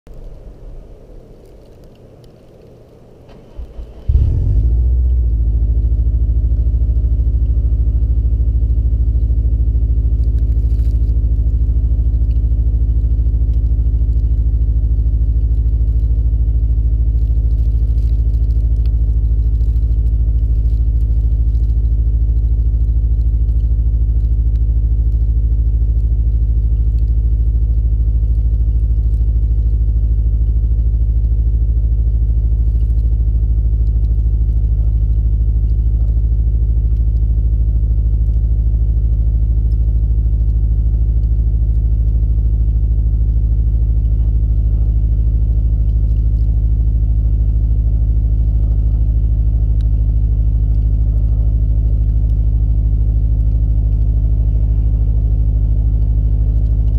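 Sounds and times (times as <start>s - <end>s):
car engine revving and idling: 0.1s - 56.9s
car engine cranking: 0.2s - 5.2s.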